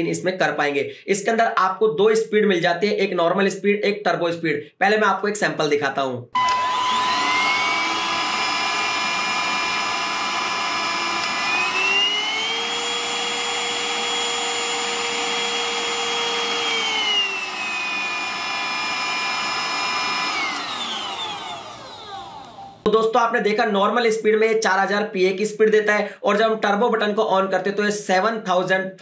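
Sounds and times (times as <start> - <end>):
handheld vacuum cleaner whine: 6.4 - 22.9.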